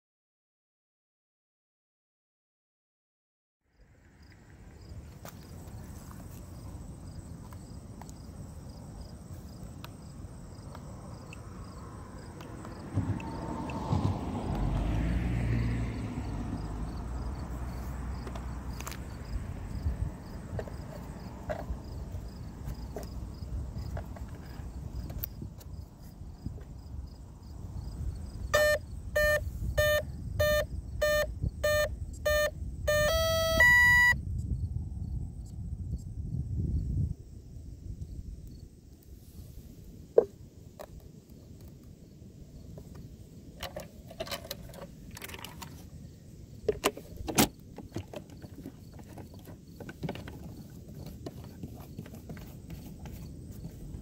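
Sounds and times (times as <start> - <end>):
electronic closing tones: 28.6 - 34.2
short electronic beeps: 28.6 - 34.2.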